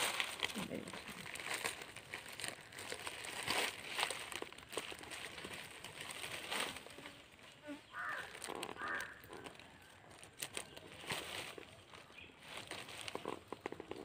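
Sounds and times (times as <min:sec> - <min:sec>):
dry palm leaf strips rustling: 0:00.0 - 0:14.0
bird calling: 0:07.0 - 0:12.5.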